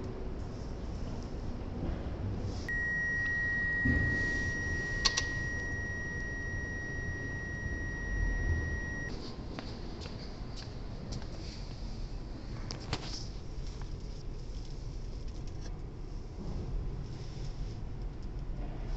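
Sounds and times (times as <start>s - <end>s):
high-pitched electronic beep: 2.7s - 9.1s
sharp click: 5.0s - 5.4s.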